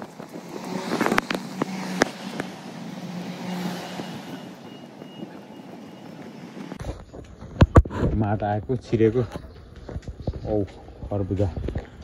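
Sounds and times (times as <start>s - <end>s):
car passing: 0.0s - 7.0s.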